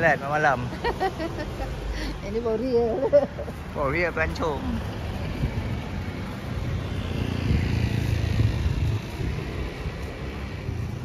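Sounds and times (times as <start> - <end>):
traffic noise: 0.0 - 11.0
vehicle driving past: 4.0 - 11.0.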